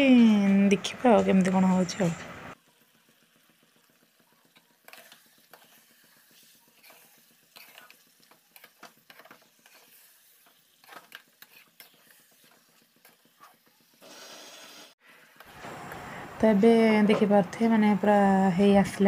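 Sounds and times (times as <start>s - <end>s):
faint sizzle of frying: 0.0s - 19.0s
spatula scraping metal pan: 4.8s - 13.6s.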